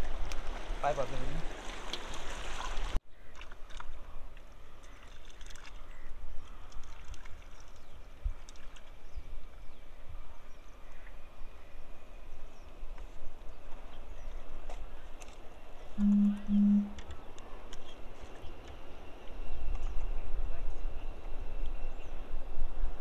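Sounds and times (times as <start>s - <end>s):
water lapping against rocks: 0.0s - 9.2s.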